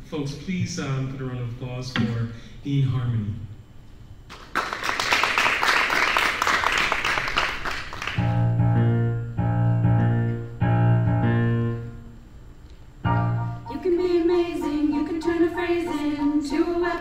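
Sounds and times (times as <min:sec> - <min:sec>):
audience applause: 0:04.5 - 0:08.3
piano held chords: 0:08.2 - 0:17.0.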